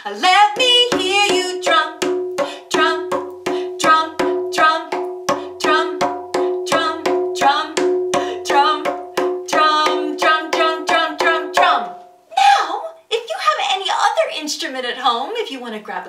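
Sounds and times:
hand drum beat: 0:00.5 - 0:12.0.

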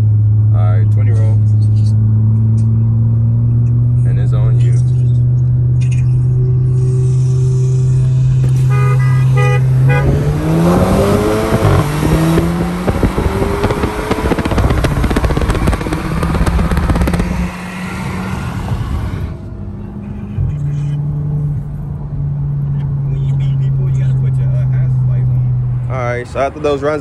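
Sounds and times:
car engines revving: 0:00.0 - 0:27.0
horn toots: 0:06.2 - 0:11.8.

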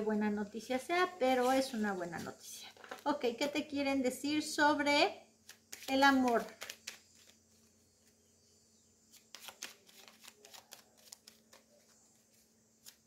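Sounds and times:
cards being shuffled: 0:05.4 - 0:08.2, 0:09.1 - 0:13.0.

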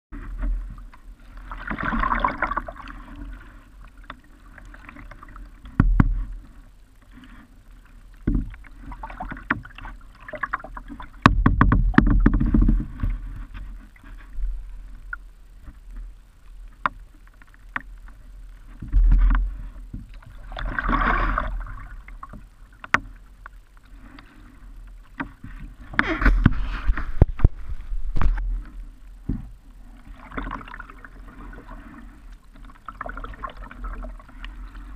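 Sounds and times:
paddle splashing in water: 0:00.1 - 0:34.9
sharp knocks: 0:11.2 - 0:12.8.

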